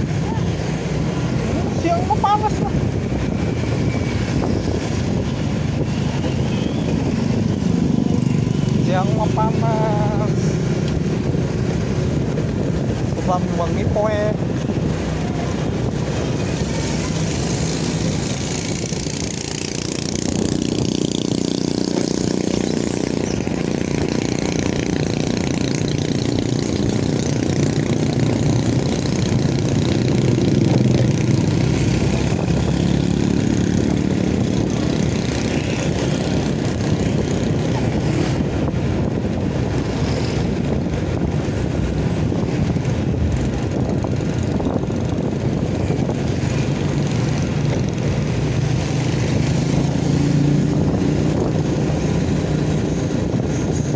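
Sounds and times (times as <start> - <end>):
motorcycle engine running: 0.0 - 53.9
road noise: 0.0 - 53.9.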